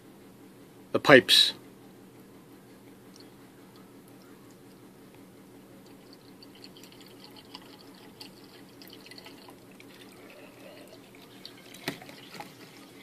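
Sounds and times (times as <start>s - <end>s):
low steady hum: 0.0s - 13.0s
liquid trickling and splashing: 5.8s - 13.0s.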